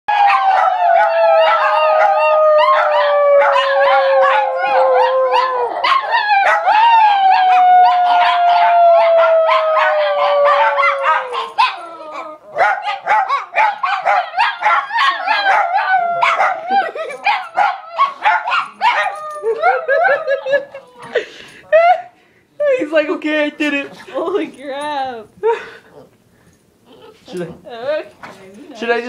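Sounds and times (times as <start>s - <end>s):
dogs barking and yipping: 0.1s - 21.0s
dogs howling: 0.1s - 21.2s.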